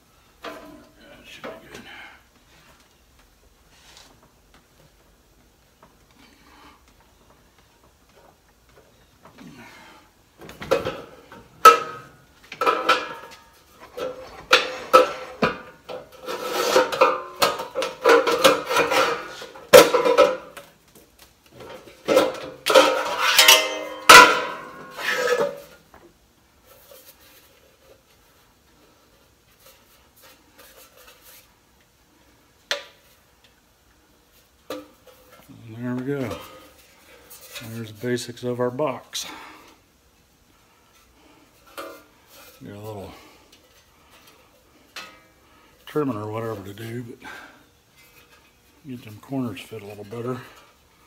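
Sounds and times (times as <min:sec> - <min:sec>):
sheet metal clanking and scraping: 0:10.6 - 0:20.5, 0:21.6 - 0:25.8.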